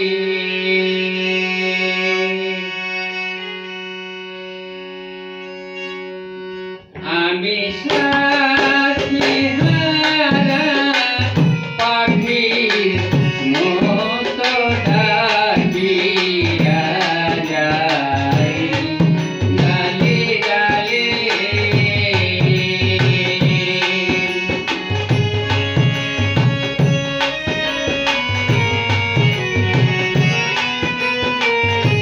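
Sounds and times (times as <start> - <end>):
harmonium: 0.0 - 32.0
violin melody: 0.8 - 7.7, 22.4 - 32.0
dhol drum beat: 7.8 - 32.0.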